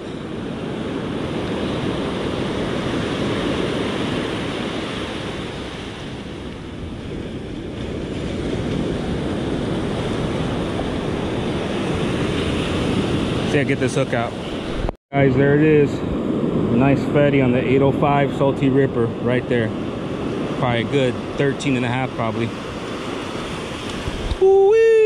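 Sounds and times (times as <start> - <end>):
surf breaking on beach: 0.0 - 25.0.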